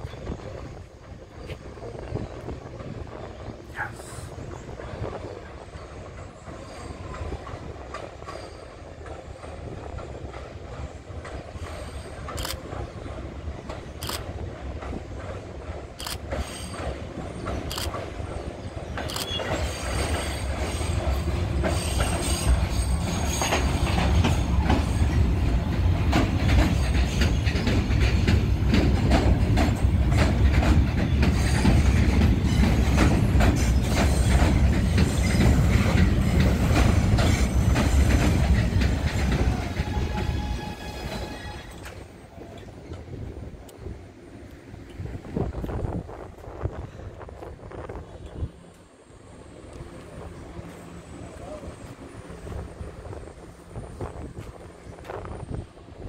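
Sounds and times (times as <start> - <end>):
subway train rumbling past: 0.0 - 56.0
wheels clicking over rail joints: 6.0 - 40.6.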